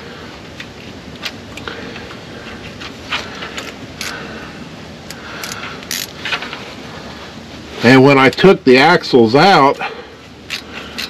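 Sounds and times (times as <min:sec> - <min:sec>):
low background noise: 0:00.0 - 0:11.0
metal parts clicking: 0:05.4 - 0:06.1.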